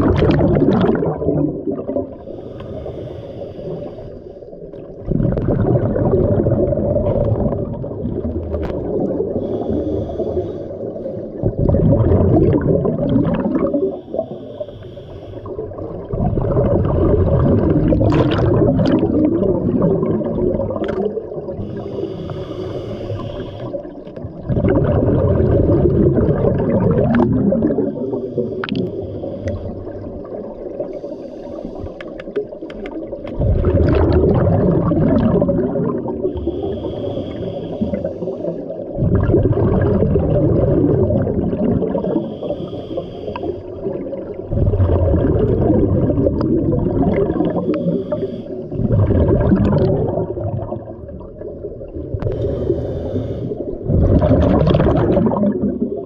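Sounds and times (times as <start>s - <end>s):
bubbling exhalations underwater: 0.0s - 2.3s, 5.0s - 9.9s, 11.3s - 14.2s, 15.6s - 21.9s, 24.2s - 29.0s, 32.4s - 36.9s, 38.9s - 42.4s, 43.8s - 52.8s, 53.7s - 56.0s
regulator hissing inhalations: 2.2s - 4.6s, 9.4s - 11.3s, 13.9s - 15.6s, 21.6s - 24.0s, 28.1s - 29.9s, 30.9s - 32.2s, 36.3s - 38.9s, 42.0s - 43.9s, 47.4s - 48.8s, 52.3s - 53.8s.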